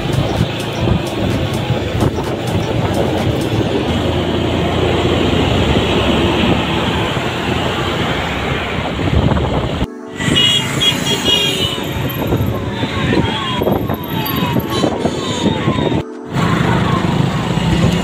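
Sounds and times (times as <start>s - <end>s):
motorcycle engine running: 0.0s - 6.6s
road and wind noise: 0.0s - 18.0s
truck traffic: 0.0s - 18.0s.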